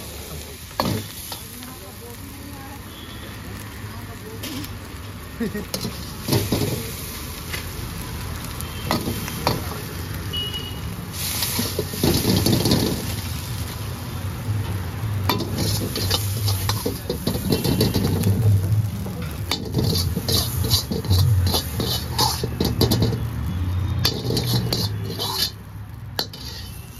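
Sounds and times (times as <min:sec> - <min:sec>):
steel ladle scraping in wok: 0:11.2 - 0:13.2, 0:15.3 - 0:23.4, 0:24.0 - 0:26.9.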